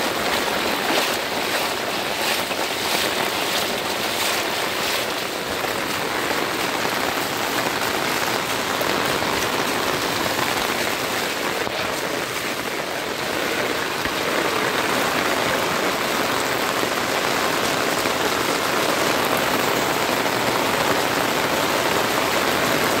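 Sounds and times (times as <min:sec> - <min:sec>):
bicycle wheel splashing water: 0:00.0 - 0:23.0
heavy rain on a road: 0:00.0 - 0:23.0.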